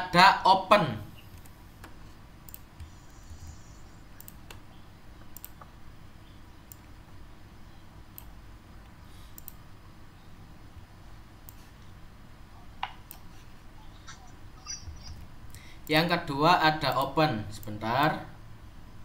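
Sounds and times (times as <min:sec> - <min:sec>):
low steady hum: 0:00.0 - 0:19.0
computer mouse clicking: 0:01.3 - 0:05.7, 0:06.7 - 0:06.9, 0:09.3 - 0:09.6, 0:11.4 - 0:11.9, 0:12.8 - 0:13.3.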